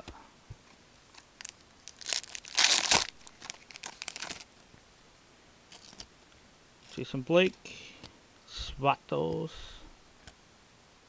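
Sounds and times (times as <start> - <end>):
wrapper crinkling: 1.1 - 4.5, 5.7 - 6.1.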